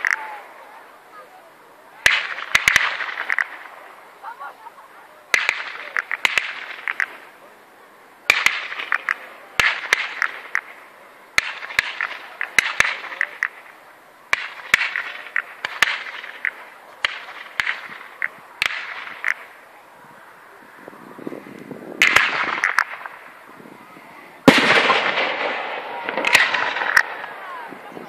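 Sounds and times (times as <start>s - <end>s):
fireworks hissing and fizzing: 1.9s - 7.6s
fireworks bangs: 2.0s - 4.5s, 5.3s - 7.4s, 8.3s - 19.6s, 21.9s - 23.4s, 24.4s - 28.0s.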